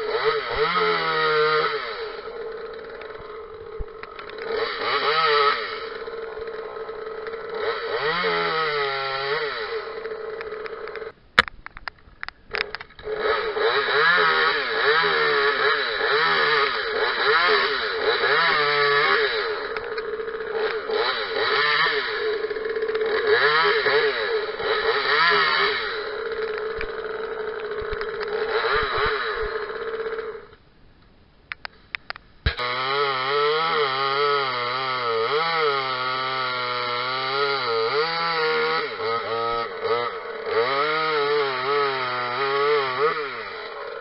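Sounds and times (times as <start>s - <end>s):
chainsaw idling and revving: 0.0s - 11.2s, 12.5s - 30.6s, 32.5s - 44.0s
sharp clicks: 2.8s - 4.6s, 10.0s - 13.2s, 19.7s - 21.0s, 22.5s - 23.3s, 26.2s - 32.6s.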